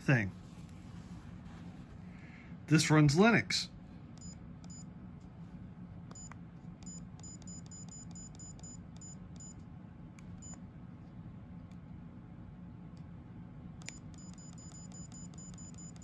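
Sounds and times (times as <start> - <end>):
camera key beeps: 13.8 - 16.0.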